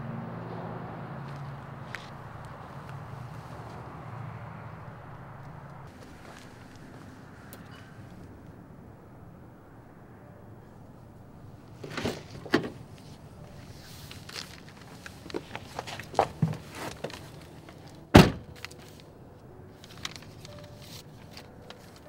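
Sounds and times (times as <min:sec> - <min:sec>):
rustling and shuffling in seat: 0:05.9 - 0:07.2, 0:11.8 - 0:19.1, 0:19.8 - 0:22.0
car door latch clicks: 0:18.1 - 0:18.5
car door slamming shut: 0:18.1 - 0:18.5.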